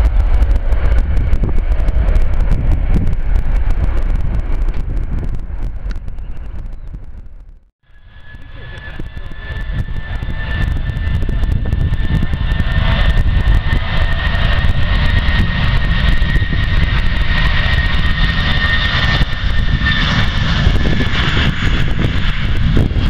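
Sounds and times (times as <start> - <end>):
jet engines rumbling: 0.0 - 23.0.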